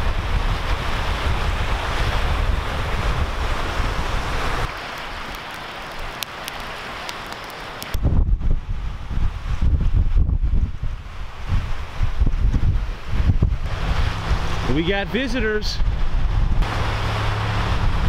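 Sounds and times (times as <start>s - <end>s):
wind buffeting microphone: 0.0s - 4.7s, 7.9s - 18.0s
strong wind: 0.0s - 7.1s, 7.8s - 18.0s
waves washing against rocks: 0.0s - 8.2s.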